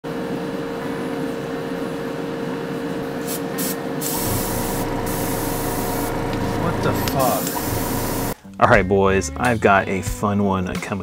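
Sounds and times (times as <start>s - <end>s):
steady background hum: 0.1s - 8.4s
airbrush spraying hiss: 3.2s - 8.4s.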